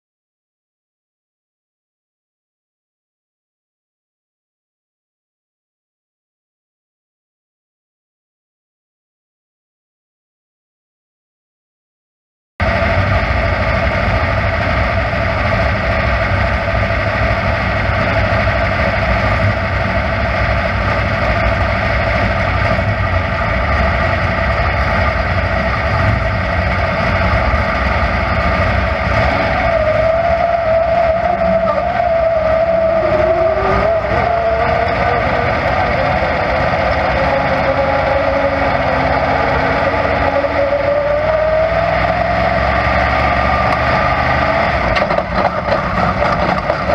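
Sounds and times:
race car engine running: 12.6 - 46.9.

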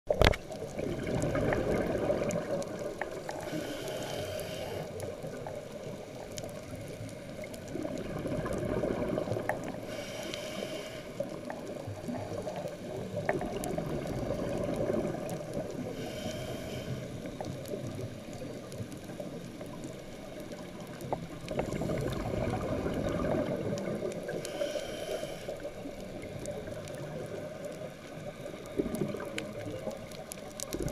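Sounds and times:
exhaled bubbles gurgling: 0.1 - 30.9
regulator inhale hiss: 3.2 - 5.4, 9.6 - 11.7, 15.8 - 17.6, 24.2 - 26.0.

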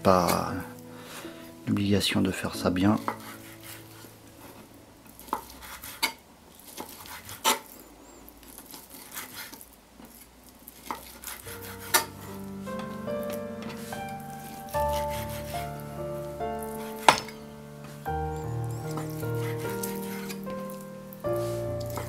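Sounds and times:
music with sustained notes: 0.0 - 5.2, 11.5 - 22.0.

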